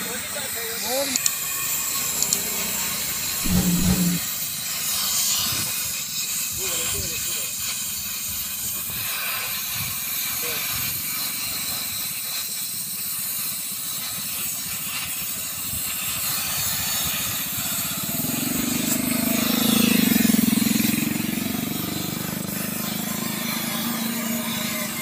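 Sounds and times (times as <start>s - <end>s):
low buzz: 1.6s - 4.2s.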